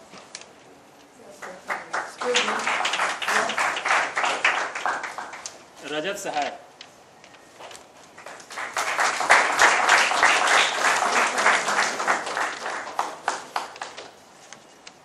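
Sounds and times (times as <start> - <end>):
audience applauding: 1.4 - 5.6, 8.2 - 14.2.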